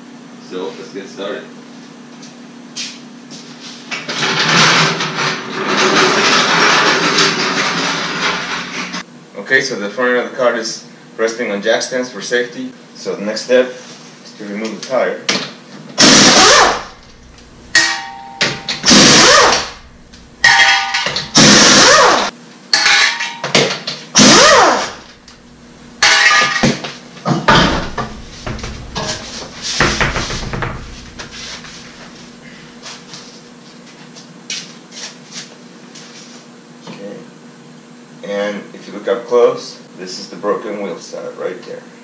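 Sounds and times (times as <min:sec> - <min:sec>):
air impact wrench bursts: 0:16.0 - 0:17.9, 0:18.5 - 0:22.3, 0:24.2 - 0:26.0, 0:27.5 - 0:32.5
quiet knocks: 0:27.5 - 0:32.0.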